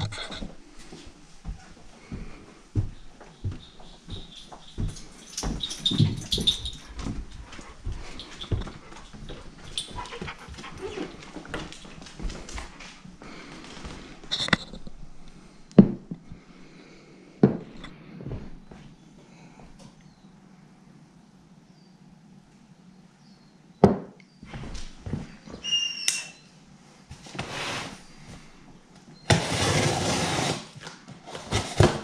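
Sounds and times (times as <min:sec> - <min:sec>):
footsteps: 0:00.0 - 0:16.6, 0:17.4 - 0:19.0, 0:24.4 - 0:25.7.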